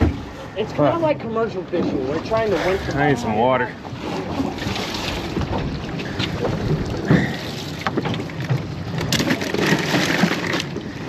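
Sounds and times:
fishing boat engine noise: 0.0s - 11.0s
wind buffeting microphone: 4.3s - 7.9s.

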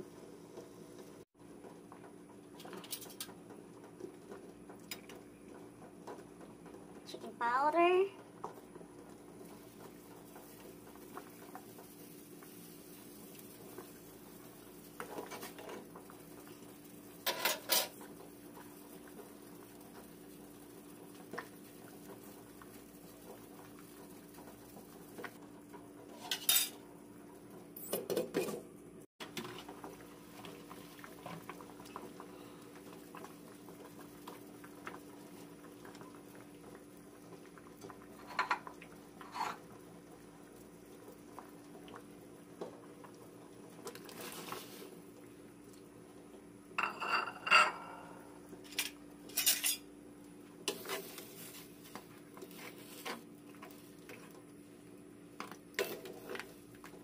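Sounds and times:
metal utensils clinking on pot: 17.2s - 18.0s, 26.2s - 26.8s, 46.8s - 48.0s, 48.7s - 49.8s.

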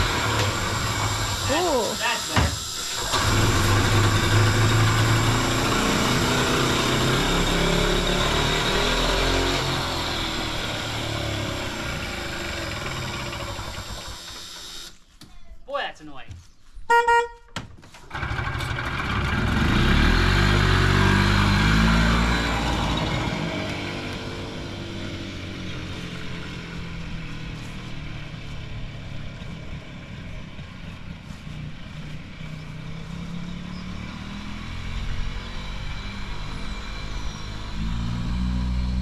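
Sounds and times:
golf cart engine revving: 0.0s - 15.0s, 18.1s - 30.9s.

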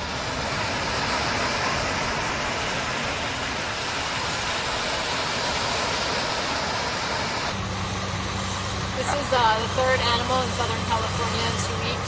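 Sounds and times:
surf breaking on a beach: 0.0s - 7.6s.

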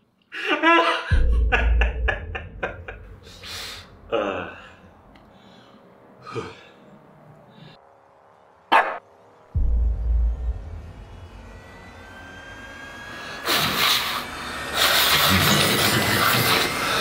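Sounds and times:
man laughing breathily: 0.3s - 4.9s.

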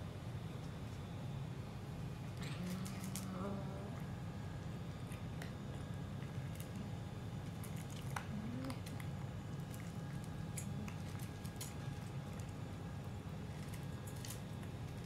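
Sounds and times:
steady low hum: 0.0s - 15.0s
cats chewing wet food: 4.0s - 15.0s.

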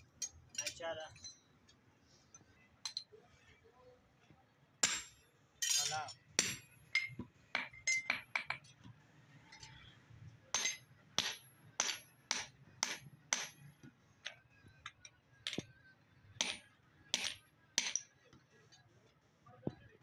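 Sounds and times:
hammer striking metal on anvil: 4.8s - 8.6s, 10.6s - 13.6s, 16.4s - 18.1s.

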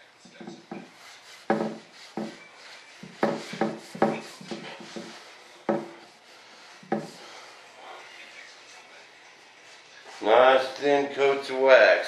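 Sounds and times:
rag rubbing wood: 0.3s - 7.4s
sharp wooden knocks: 1.5s - 2.4s, 3.1s - 5.1s.

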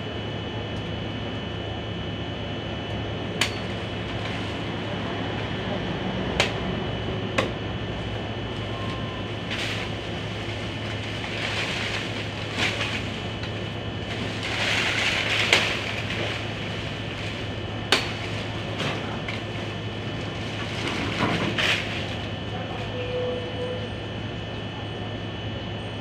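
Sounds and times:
steady background hum: 0.0s - 26.0s
knife chopping branches: 3.4s - 4.6s, 6.3s - 6.8s, 7.4s - 7.6s, 8.6s - 19.9s, 20.5s - 22.3s
leaves rustling: 8.5s - 22.4s.

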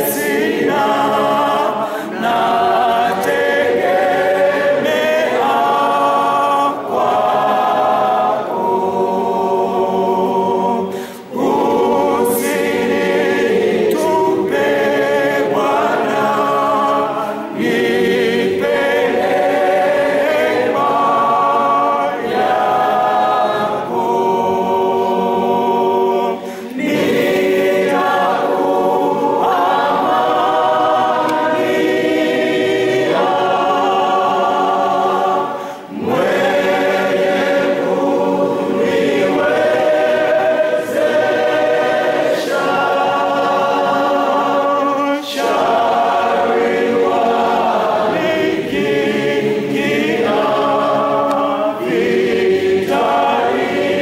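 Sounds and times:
congregation singing a hymn: 0.0s - 54.0s.

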